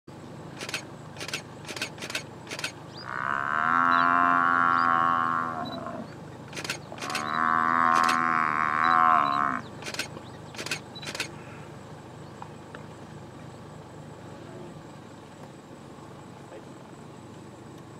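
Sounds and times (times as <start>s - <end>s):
sharp clicks: 0.6s - 2.8s, 6.5s - 7.3s, 7.9s - 8.2s, 9.8s - 11.4s
buffalo bellowing in distress: 3.0s - 6.1s, 6.9s - 9.7s.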